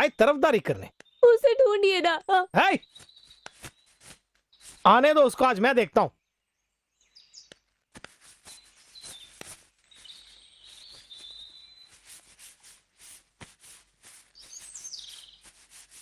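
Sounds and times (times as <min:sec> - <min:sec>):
small birds chirping: 0:00.0 - 0:16.0
high twittering bird call: 0:00.9 - 0:05.2, 0:08.5 - 0:12.1, 0:14.4 - 0:15.5.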